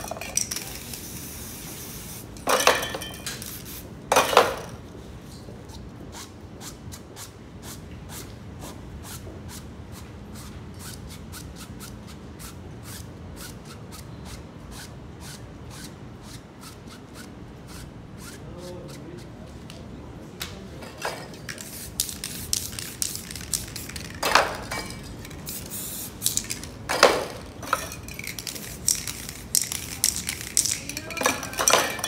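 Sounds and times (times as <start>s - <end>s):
spray paint can hissing: 0.4s - 2.4s, 3.3s - 3.8s, 21.5s - 26.7s, 28.1s - 31.6s.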